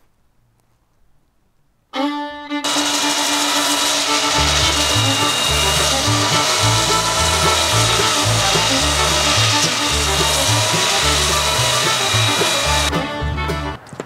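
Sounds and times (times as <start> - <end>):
power sander on wood: 2.6 - 12.9
background music with bass line: 4.4 - 13.8.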